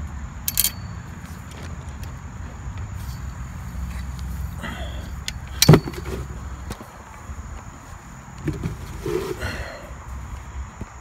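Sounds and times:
sharp metal clack: 0.5 - 1.0, 5.3 - 6.2.

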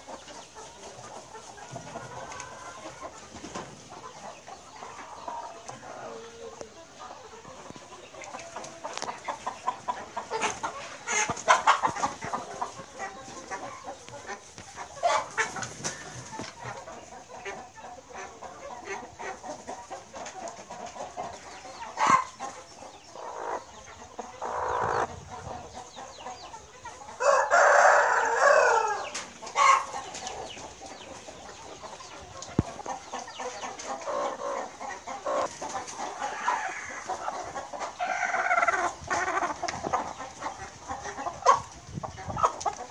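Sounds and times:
chickens clucking: 0.0 - 42.9
rooster crowing: 27.2 - 29.1.

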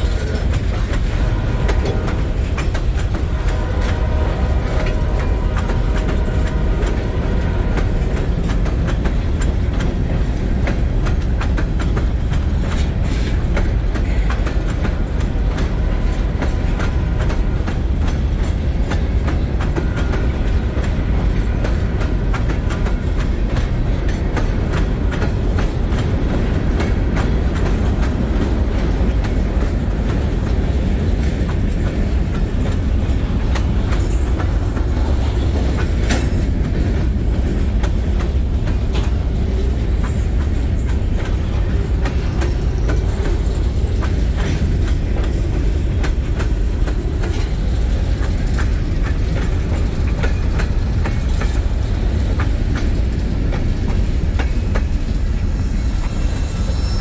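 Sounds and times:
train wheels rumbling on rails: 0.0 - 57.0
wheels clicking over rail joints: 0.0 - 57.0.

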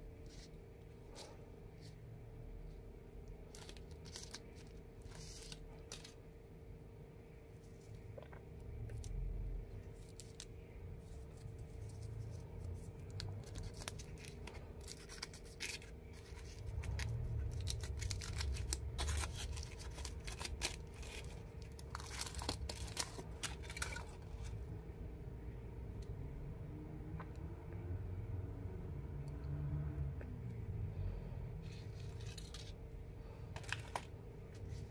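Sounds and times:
foil wrapper crinkling: 3.5 - 6.2, 11.3 - 24.6.

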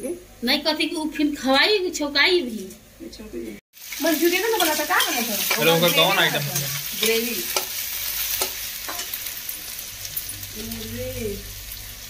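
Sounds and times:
garlic sizzling in oil: 3.7 - 12.0
spoon tapping pan: 5.0 - 9.2.

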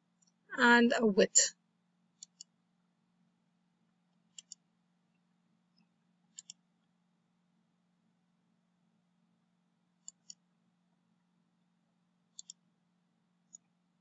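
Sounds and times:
faint steady low hum: 0.0 - 14.0
computer mouse clicking: 2.2 - 2.6, 4.3 - 4.6, 6.3 - 6.6, 10.0 - 10.4, 12.3 - 12.6, 13.5 - 13.7.

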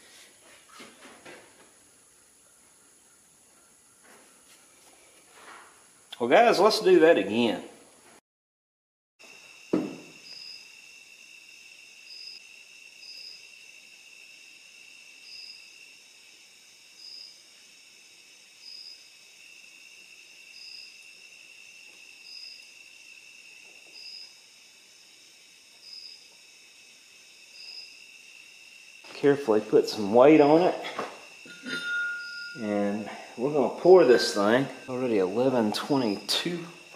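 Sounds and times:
insects trilling and chirping: 0.0 - 8.1, 9.2 - 36.9
sharp knock: 9.7 - 10.1.

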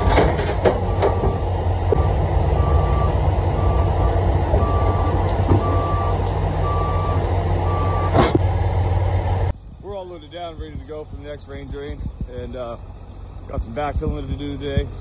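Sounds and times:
diesel engine running: 0.0 - 15.0
travel alarm beeping: 2.0 - 8.2.

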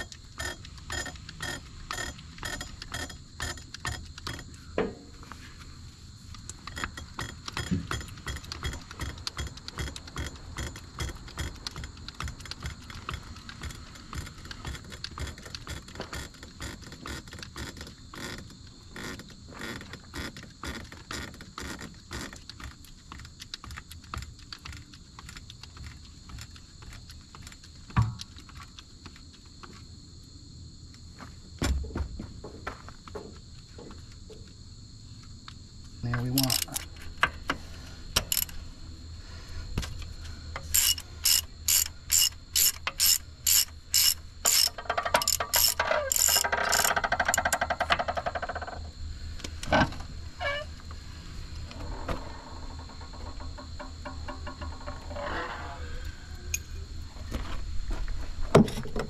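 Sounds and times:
metallic clicking and clinking: 0.0 - 4.6, 6.3 - 17.7, 36.2 - 37.3, 40.6 - 48.0
high insect trill: 0.0 - 59.0.

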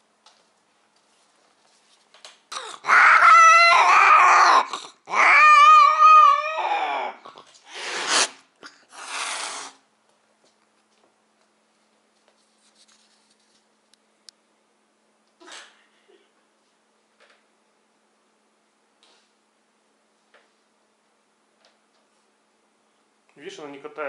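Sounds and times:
cat yowling: 2.6 - 9.8
cat hissing: 7.4 - 9.8.

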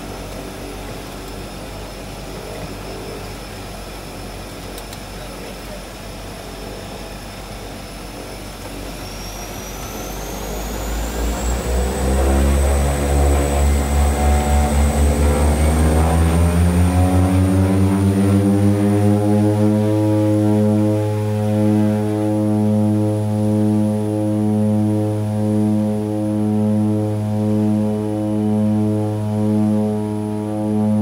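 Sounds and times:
propeller drone pulsing: 0.0 - 31.0
turbine whine: 0.0 - 31.0.

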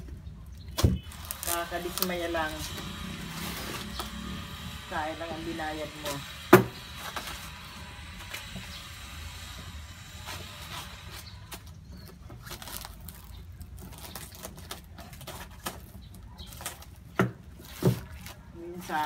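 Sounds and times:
handling cardboard box and plastic: 0.0 - 8.9, 9.9 - 19.0.

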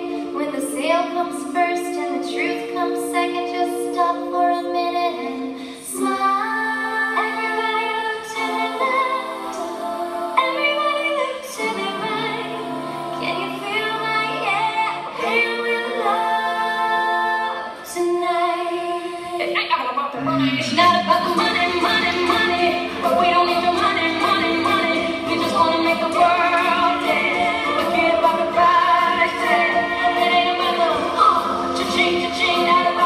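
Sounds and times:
women singing in close harmony: 0.0 - 33.0.

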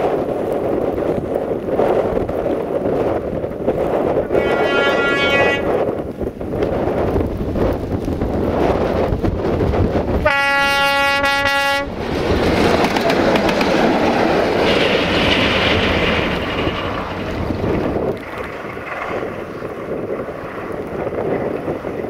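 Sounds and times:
locomotive running noise: 0.0 - 22.0
locomotive horn blast: 4.3 - 5.8, 10.2 - 12.0.

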